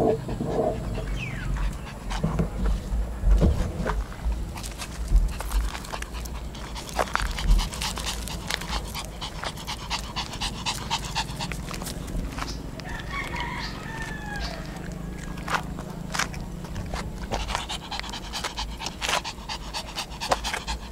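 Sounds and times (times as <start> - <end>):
dog panting: 0.0 - 3.2, 4.0 - 13.8, 14.5 - 20.9
rooster crowing: 12.8 - 15.6.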